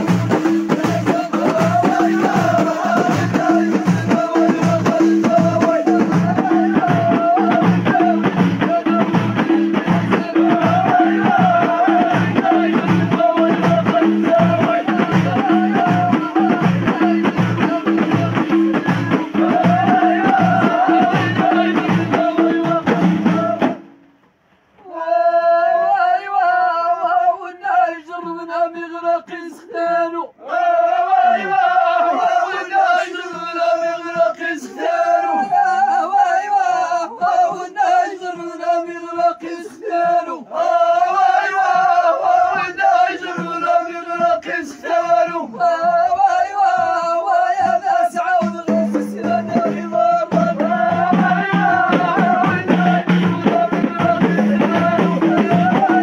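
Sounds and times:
men chanting in unison: 0.0s - 23.8s, 24.8s - 56.0s
men singing together: 0.0s - 23.8s, 24.8s - 56.0s
frame drums beating: 0.0s - 23.9s, 40.1s - 56.0s.

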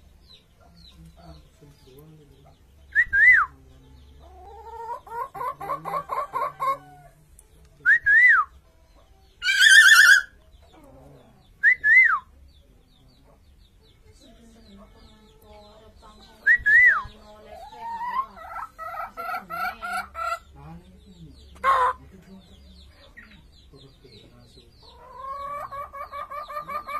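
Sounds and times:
myna whistling: 2.9s - 3.6s, 7.8s - 8.6s, 11.6s - 12.3s, 16.4s - 17.2s
myna clucking notes: 4.0s - 7.1s, 15.4s - 22.2s, 22.8s - 26.9s
harsh wavering bird call: 9.4s - 10.4s.

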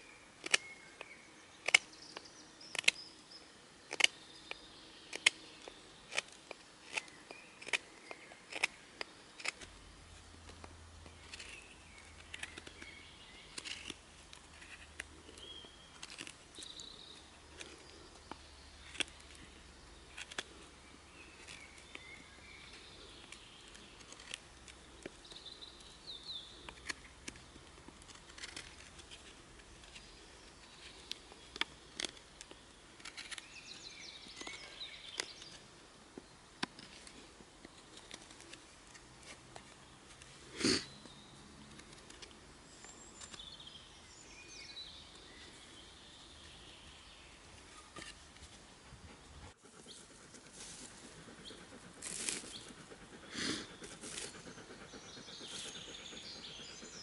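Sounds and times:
birds singing: 0.0s - 9.6s, 10.2s - 57.0s.

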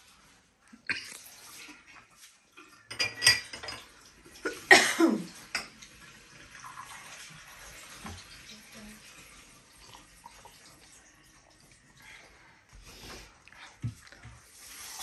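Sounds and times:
dishes and cutlery clattering: 2.0s - 5.9s.

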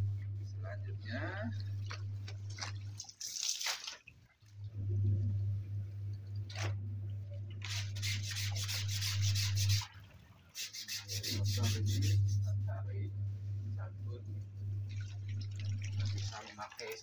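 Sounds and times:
steady low hum: 0.0s - 3.1s, 4.4s - 17.0s
soapy water sloshing in a basin: 1.2s - 4.7s, 7.5s - 12.4s, 14.8s - 17.0s
hand brush scrubbing fabric: 7.6s - 10.0s, 10.6s - 12.6s.

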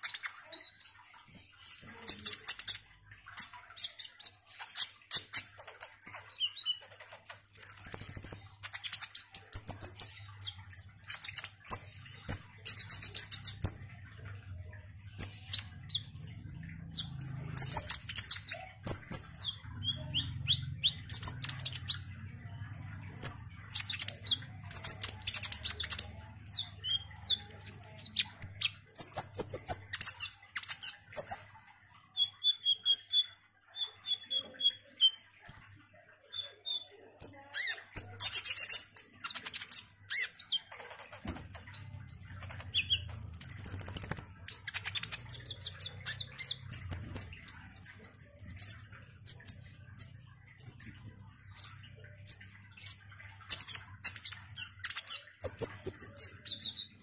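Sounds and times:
sunbird singing: 41.5s - 57.0s.

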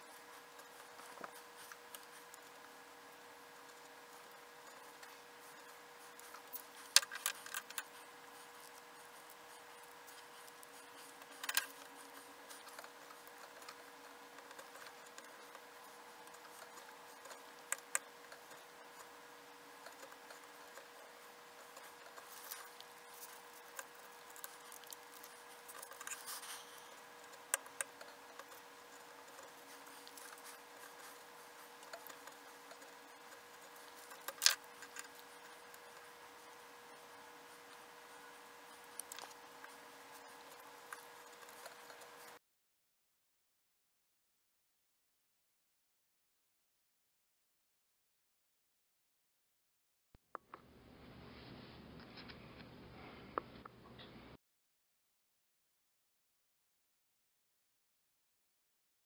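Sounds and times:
faint steady hum: 0.0s - 42.4s.

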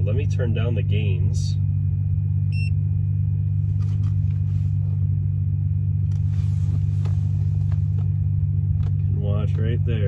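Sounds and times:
subwoofer deep test tone: 0.0s - 10.0s.

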